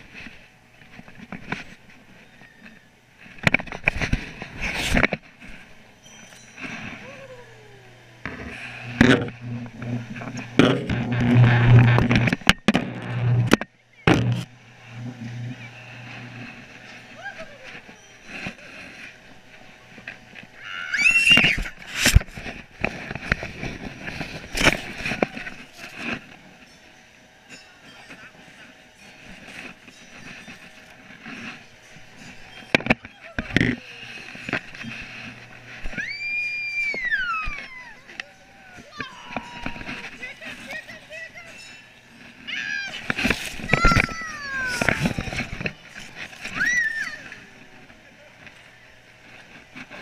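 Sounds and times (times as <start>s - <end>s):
camera rubbing against clothing: 0.0s - 7.4s, 8.2s - 20.6s, 21.4s - 26.7s, 27.9s - 50.0s
toddler squealing: 20.6s - 21.6s, 36.0s - 39.9s, 46.5s - 47.3s.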